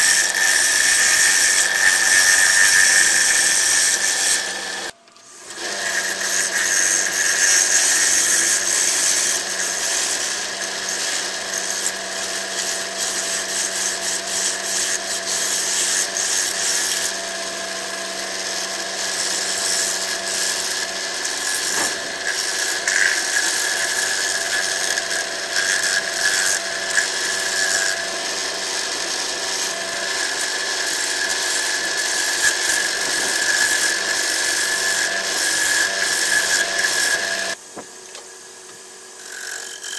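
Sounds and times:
wood lathe spinning: 0.0s - 37.6s
gouge scraping wood: 19.2s - 27.8s.

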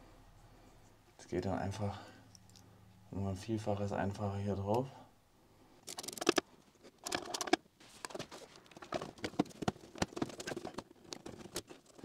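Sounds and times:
plastic hose rustling: 5.9s - 12.0s.

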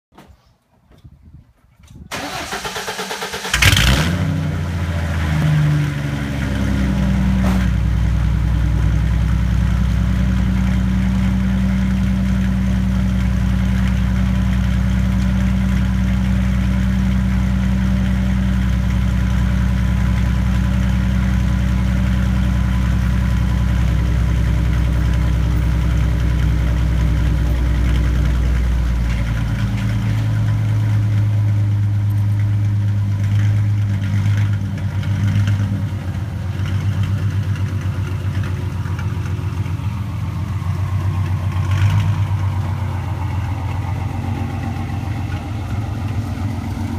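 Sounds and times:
engine starter cranking: 2.0s - 4.2s
car engine idling: 2.2s - 46.9s.

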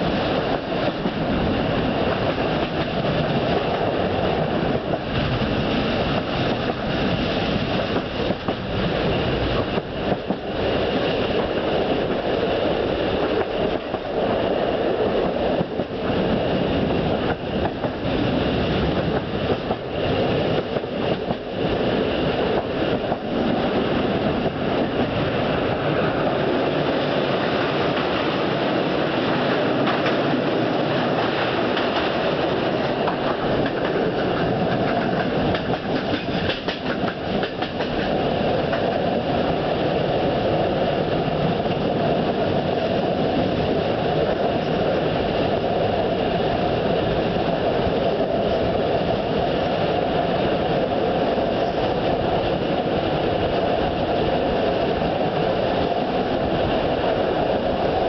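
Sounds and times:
rail clicks: 0.0s - 58.0s
train wheels rumbling on rails: 0.0s - 58.0s.

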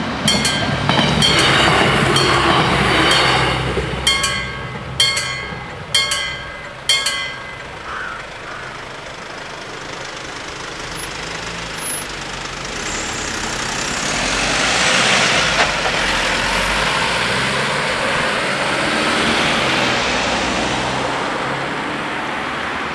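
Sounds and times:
level crossing bells: 0.0s - 8.8s
cars driving over crossing: 0.0s - 22.9s.

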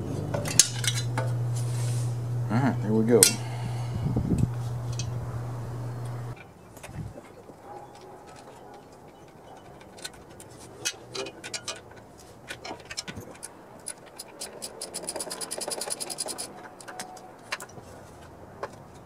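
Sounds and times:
hand tools clicking and scraping: 0.0s - 1.7s, 3.2s - 3.6s, 4.4s - 5.2s, 6.0s - 19.0s.

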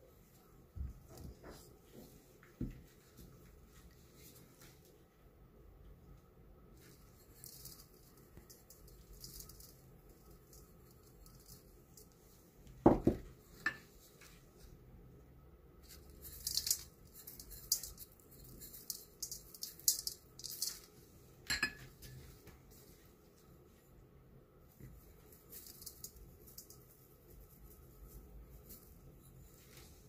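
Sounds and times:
dry seasoning rustling: 6.8s - 12.2s, 15.8s - 21.0s, 24.8s - 30.0s
ceramic bowl clinking on metal bowl: 21.5s - 21.9s.

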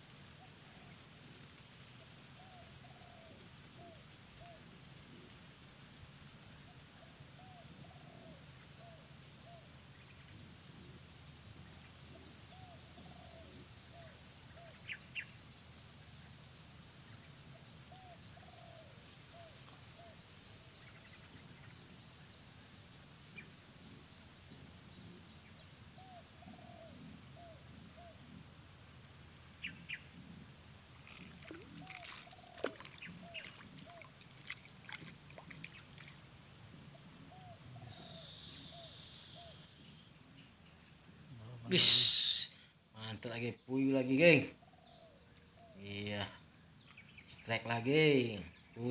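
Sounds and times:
fish splashing and thrashing: 30.9s - 36.4s
bird calling: 31.0s - 36.3s, 36.9s - 40.8s.

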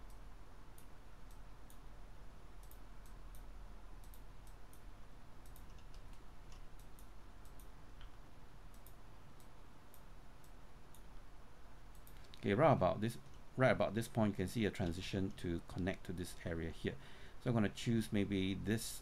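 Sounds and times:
low steady hum: 0.0s - 19.0s
mouse and keyboard clicks: 5.4s - 8.1s.

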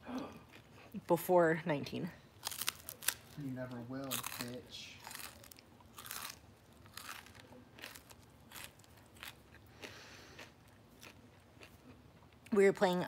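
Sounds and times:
person chewing rice cake: 2.4s - 3.4s, 4.0s - 12.5s.

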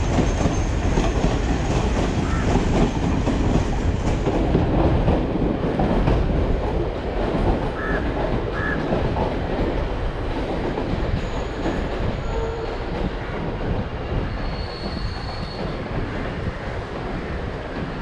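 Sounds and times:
train wheels rumbling on rails: 0.0s - 18.0s
faint high squeal: 14.4s - 15.7s.

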